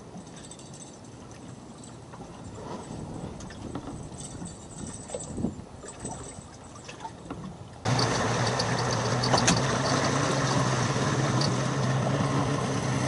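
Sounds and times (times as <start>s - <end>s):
boat engine idling: 7.8s - 13.0s.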